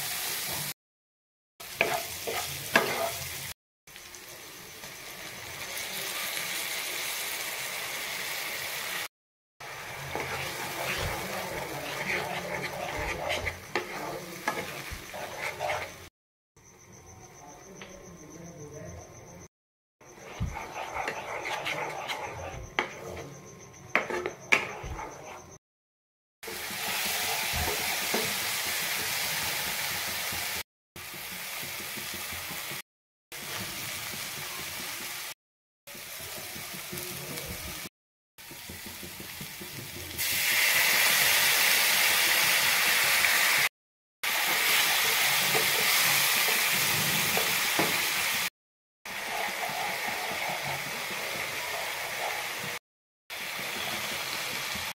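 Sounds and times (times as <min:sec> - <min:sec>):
masala sizzling in a pan: 0:00.0 - 0:00.8, 0:01.6 - 0:16.1, 0:20.1 - 0:23.2, 0:26.4 - 0:32.8, 0:33.4 - 0:48.5, 0:49.1 - 0:54.9
spatula stirring: 0:01.7 - 0:03.4, 0:09.7 - 0:16.1, 0:20.1 - 0:25.6, 0:26.5 - 0:30.6, 0:44.5 - 0:48.0, 0:49.1 - 0:52.8.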